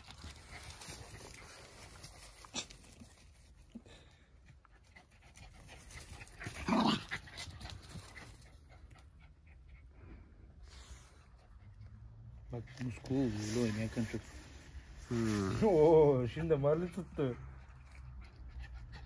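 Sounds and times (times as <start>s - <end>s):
dogs panting: 0.0s - 14.0s, 15.6s - 19.0s.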